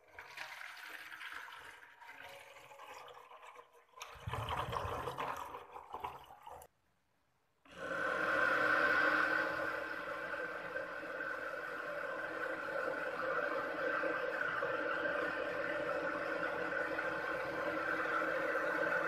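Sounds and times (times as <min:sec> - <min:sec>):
water pouring and splashing: 0:00.0 - 0:06.7
cooler fan and pump whirring: 0:07.7 - 0:19.0.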